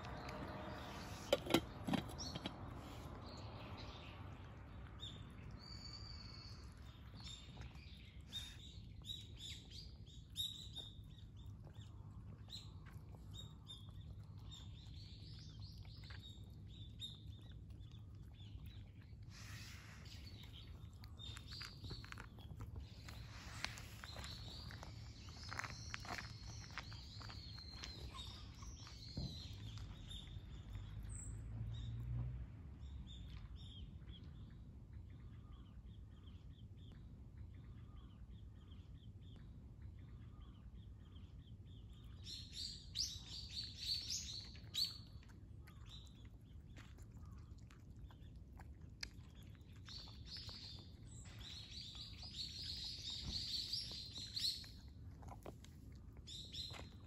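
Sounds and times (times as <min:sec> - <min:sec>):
cats eating dry food: 0:00.0 - 0:31.6, 0:32.7 - 0:57.0
small birds chirping: 0:00.0 - 0:57.0.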